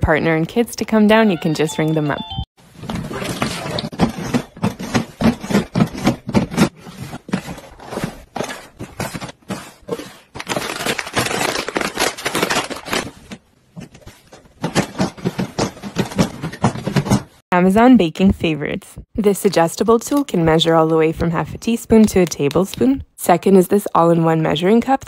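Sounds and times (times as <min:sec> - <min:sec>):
packaging rustling: 0:02.7 - 0:17.2.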